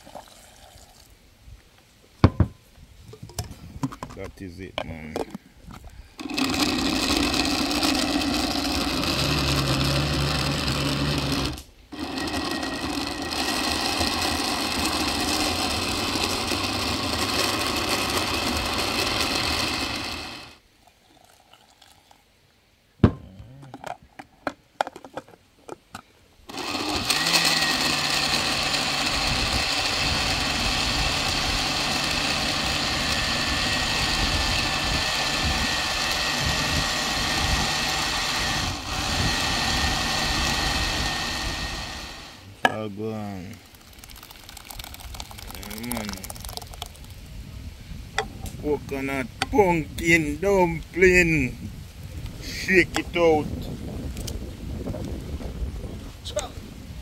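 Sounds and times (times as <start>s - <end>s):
electric blender motor: 6.2s - 20.6s, 26.5s - 42.4s, 43.7s - 46.8s.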